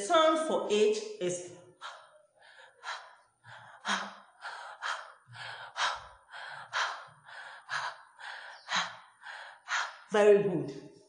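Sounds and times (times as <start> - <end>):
woman breathing out h sounds: 1.8 - 10.1.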